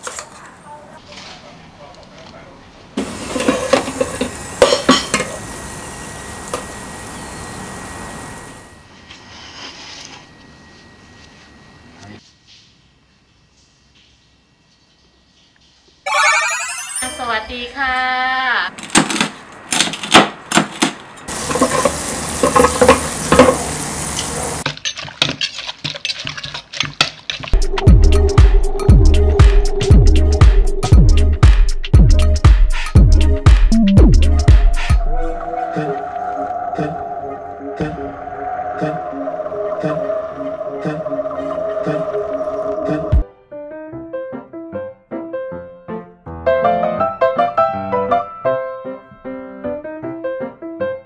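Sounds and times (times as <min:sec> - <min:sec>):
air fryer basket clattering: 0:03.0 - 0:05.4, 0:20.7 - 0:23.8
food sizzling: 0:03.0 - 0:08.5, 0:21.3 - 0:24.7
steady hiss: 0:21.3 - 0:24.6
pestle pounding in mortar: 0:24.6 - 0:27.6.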